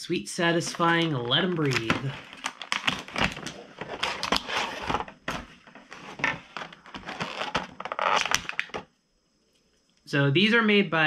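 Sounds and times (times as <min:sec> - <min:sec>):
packaging crinkling and crunching: 0:00.6 - 0:08.8.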